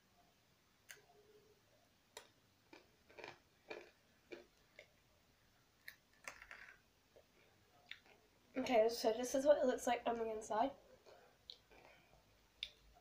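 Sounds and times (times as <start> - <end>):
person crunching candy: 2.2 - 4.9, 5.8 - 6.8.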